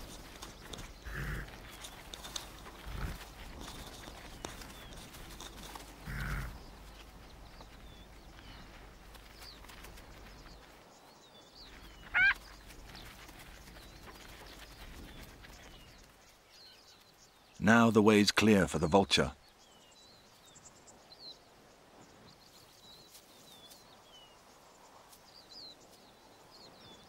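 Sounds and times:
faint bird chirps: 0:06.1 - 0:17.6
loud high wavering bird call: 0:12.0 - 0:12.4.

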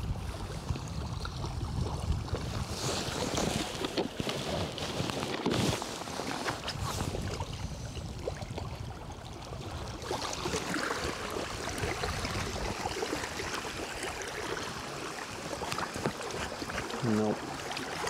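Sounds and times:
wind buffeting microphone: 0:00.0 - 0:13.8
waves lapping on stony shore: 0:00.0 - 0:18.0.

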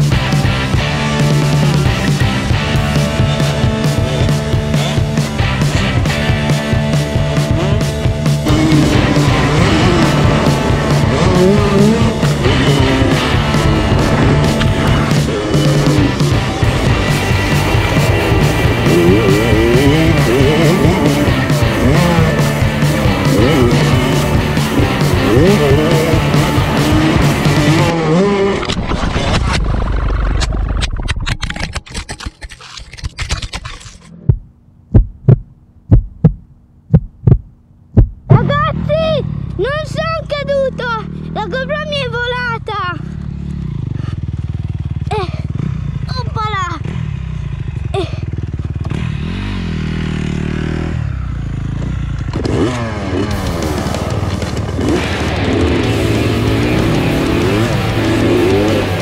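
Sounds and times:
music: 0:00.0 - 0:28.0, 0:53.2 - 0:59.0
motocross bike engine: 0:00.0 - 0:34.8, 0:38.2 - 0:59.0
heartbeat thumps: 0:02.6 - 0:27.8, 0:34.2 - 0:38.6.

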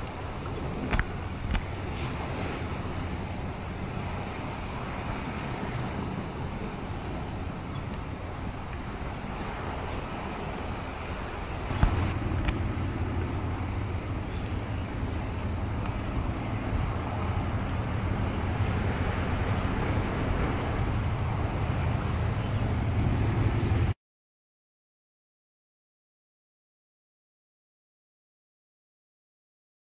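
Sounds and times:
outdoor rumble and hiss: 0:00.0 - 0:24.0.

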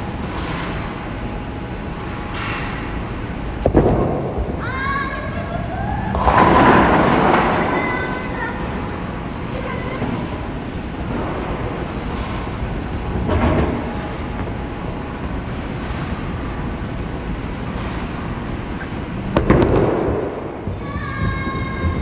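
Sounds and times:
rumble of rolling bowling balls: 0:00.0 - 0:22.0
bowling pins clattering: 0:06.1 - 0:08.4.

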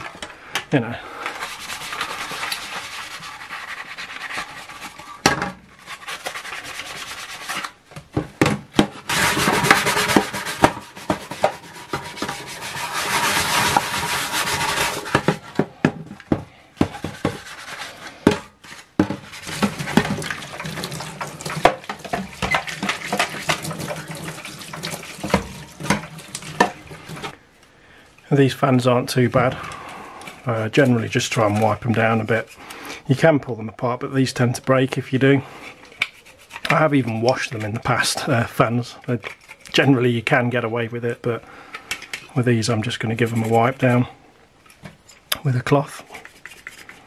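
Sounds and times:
brush scrubbing metal panel: 0:01.3 - 0:07.8, 0:09.0 - 0:15.7, 0:16.8 - 0:27.4, 0:35.6 - 0:38.6, 0:42.8 - 0:44.0, 0:45.8 - 0:47.0
water sloshing: 0:19.2 - 0:27.4.

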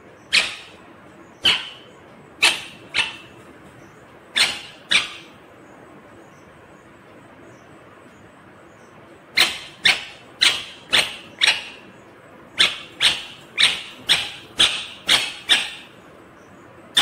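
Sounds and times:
parakeet harsh calls: 0:00.1 - 0:05.4, 0:09.3 - 0:16.0.

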